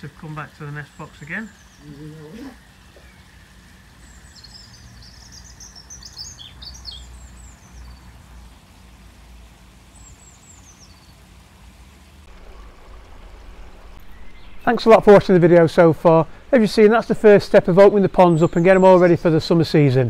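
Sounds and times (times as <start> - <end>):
songbirds chirping: 0.0 - 20.0
steady low rumble: 11.2 - 19.6.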